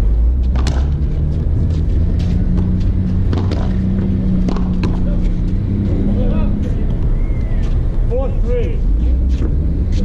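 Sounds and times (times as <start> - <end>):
low engine-like drone: 0.0 - 10.0
sharp knocks: 0.5 - 1.1, 2.5 - 5.1.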